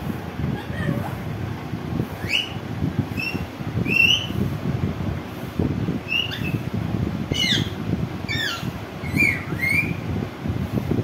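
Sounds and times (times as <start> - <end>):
parakeet high calls: 2.2 - 2.6, 6.0 - 6.6, 7.3 - 10.0.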